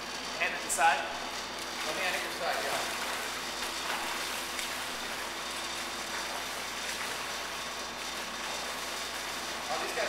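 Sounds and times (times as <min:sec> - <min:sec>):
water splashing from swimming: 0:01.6 - 0:09.6.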